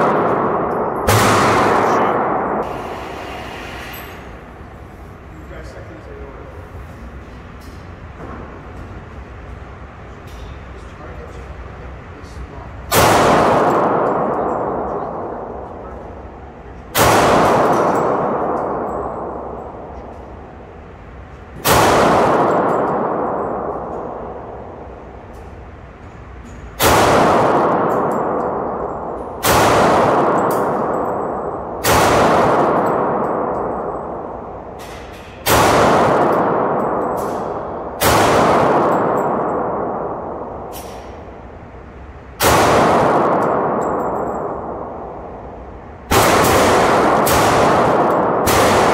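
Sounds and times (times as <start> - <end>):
pistol shots with ringing echo: 0.0 - 3.0, 12.9 - 20.6, 21.6 - 25.3, 26.8 - 41.5, 42.4 - 48.9.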